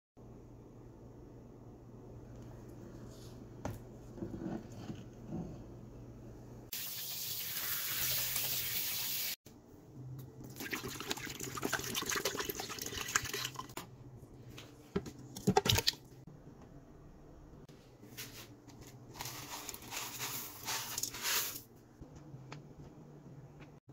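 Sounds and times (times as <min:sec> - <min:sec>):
tap water running: 0:06.7 - 0:09.4.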